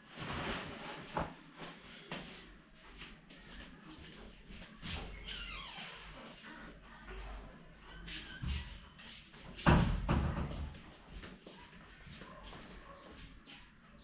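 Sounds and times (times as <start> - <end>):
footsteps on tiled floor: 0.2 - 14.0
wooden door banging shut: 9.6 - 10.8.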